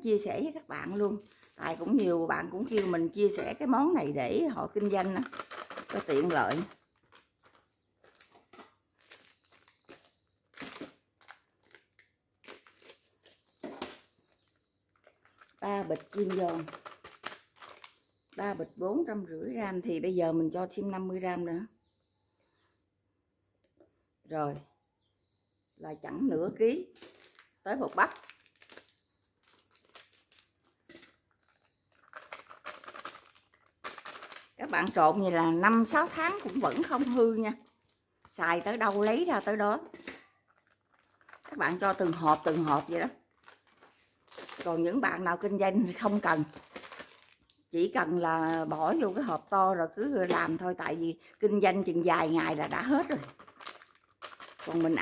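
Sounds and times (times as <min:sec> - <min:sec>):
plastic packets crinkling: 0:04.6 - 0:18.4, 0:26.8 - 0:50.6, 0:51.2 - 0:55.0.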